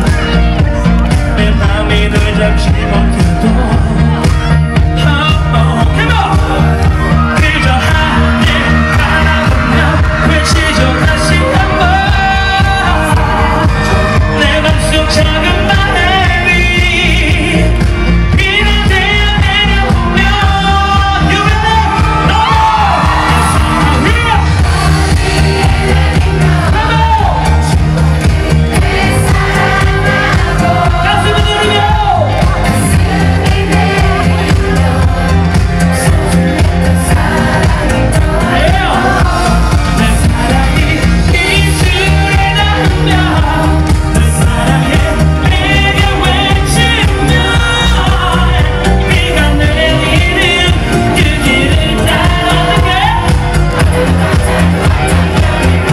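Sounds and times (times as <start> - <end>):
amplified backing track: 0.0 - 55.9
man singing into microphone: 1.2 - 27.8, 29.0 - 55.9.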